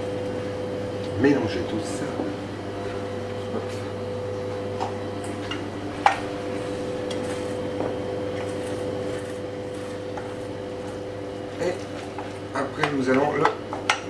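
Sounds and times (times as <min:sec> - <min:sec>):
electrical hum: 0:00.0 - 0:14.0
utensil stirring in metal bowl: 0:08.3 - 0:14.0.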